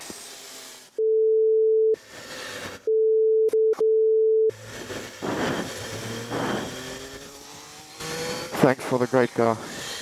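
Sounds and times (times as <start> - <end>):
censor bleep tone: 1.0 - 2.0, 2.9 - 4.5.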